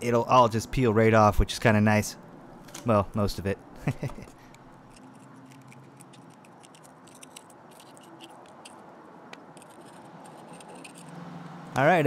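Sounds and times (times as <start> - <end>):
screwdriver scraping glass: 4.8 - 11.2.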